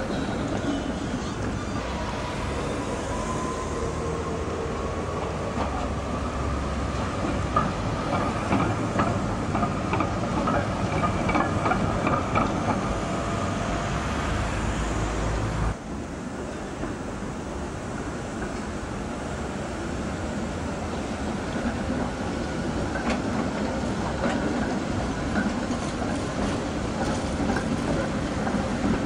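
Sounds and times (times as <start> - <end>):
low rumble of traffic: 0.0 - 16.8
tram wheels clicking over rail joints: 3.2 - 15.5, 20.8 - 29.0.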